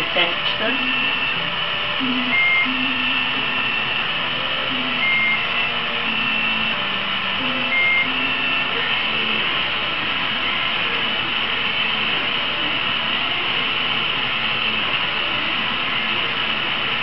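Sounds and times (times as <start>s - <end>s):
gas torch hissing: 0.0s - 17.0s
short high beep: 2.0s - 3.8s, 4.8s - 6.7s, 7.4s - 8.8s.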